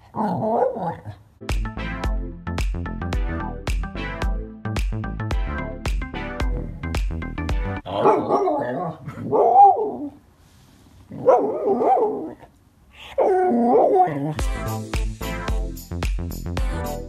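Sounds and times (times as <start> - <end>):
electronic music with steady beat: 1.4 - 7.8, 14.4 - 17.0.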